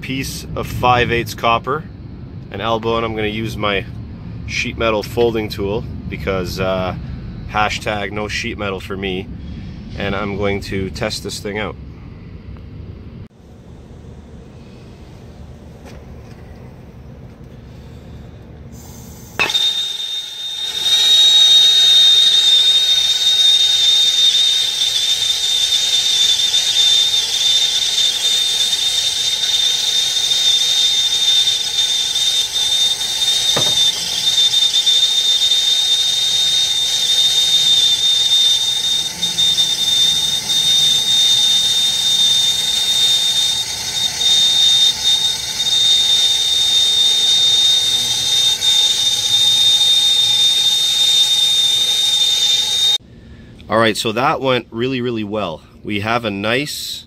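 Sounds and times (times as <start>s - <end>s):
high whistle: 18.7s - 53.0s
torch flame hissing: 18.7s - 53.0s.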